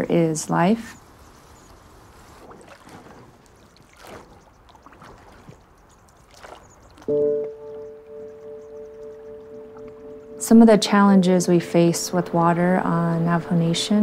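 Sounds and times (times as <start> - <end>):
faint river water: 0.0 - 14.0
oars splashing: 0.1 - 14.0
bell-like tone ringing: 7.1 - 11.2.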